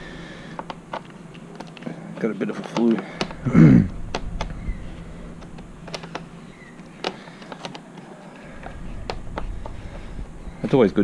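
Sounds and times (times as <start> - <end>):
screwdriver clicks and taps: 2.6 - 3.4, 7.0 - 7.8.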